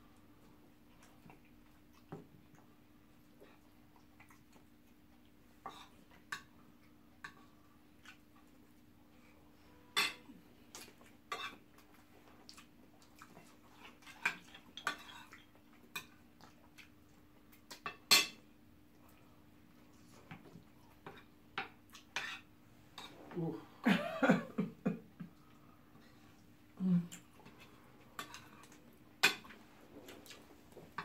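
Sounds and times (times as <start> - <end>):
faint steady hum: 0.0 - 31.0
spoons clinking on ceramic plates: 9.9 - 10.3.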